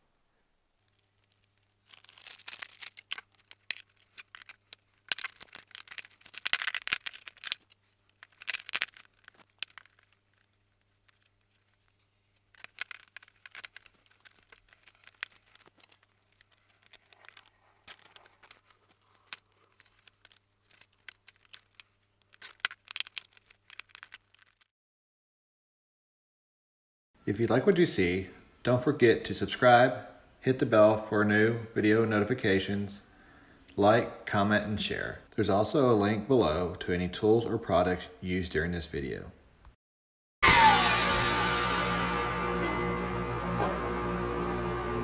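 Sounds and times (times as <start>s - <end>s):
plastic cable crinkling and clicking: 0.8s - 24.7s.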